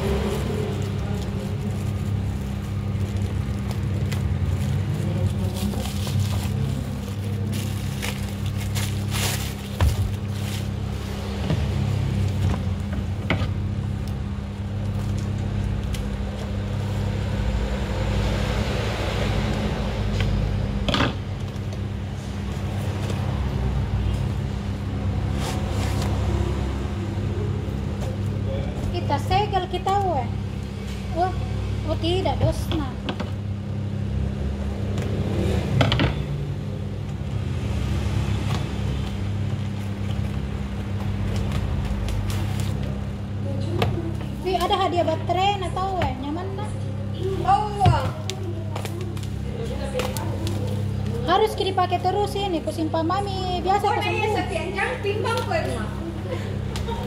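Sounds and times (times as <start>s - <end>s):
steady low hum: 0.0s - 57.0s
cardboard and tape rustling: 0.1s - 11.4s, 47.8s - 51.3s.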